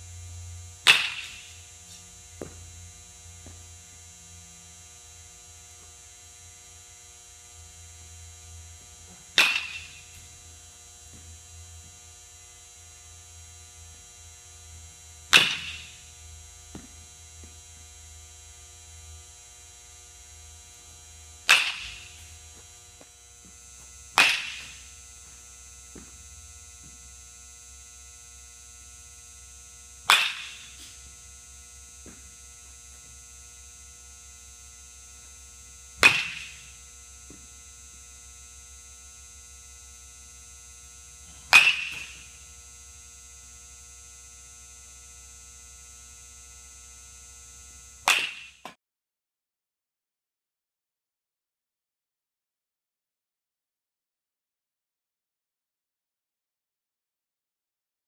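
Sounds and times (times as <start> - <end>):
steady electrical hum: 0.0 - 48.6
baseball bat hitting ball: 0.8 - 1.6, 9.1 - 10.4, 15.3 - 16.1, 21.4 - 22.7, 23.5 - 26.2, 30.0 - 31.2, 36.0 - 37.4, 41.3 - 42.4, 48.0 - 48.8.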